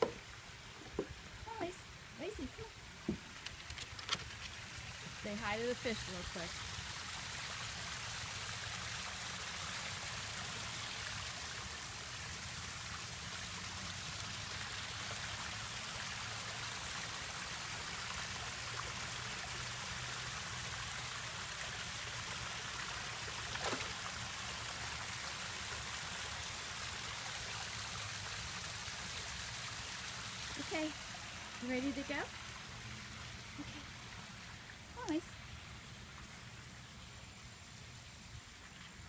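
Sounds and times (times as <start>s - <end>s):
waterfall splashing over rocks: 4.3s - 35.2s.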